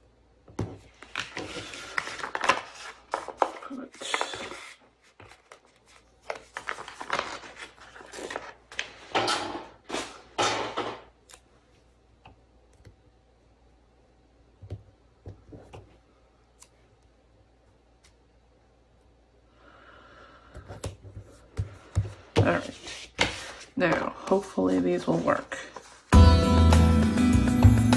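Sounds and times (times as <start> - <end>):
sticker sheet rustling: 0.9 - 9.2.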